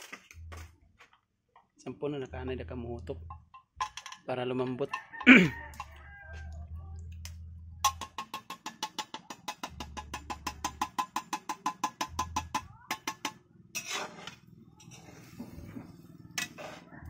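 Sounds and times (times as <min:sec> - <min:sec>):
metal spoon tapping inside tin can: 0:03.2 - 0:04.3, 0:04.9 - 0:06.2, 0:07.8 - 0:14.0.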